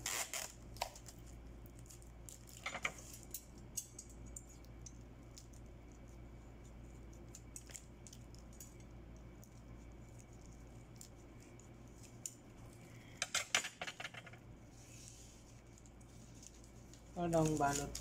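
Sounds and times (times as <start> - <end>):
low steady hum: 0.0 - 18.0
bouquet wrapping crinkling: 15.2 - 18.0.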